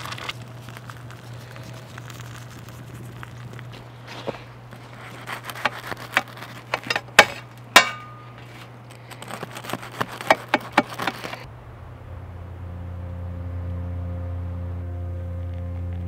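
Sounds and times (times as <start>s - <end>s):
knife sawing through bread crust: 4.0s - 7.5s, 8.4s - 11.4s
metallic ring of baking tray: 6.7s - 8.5s.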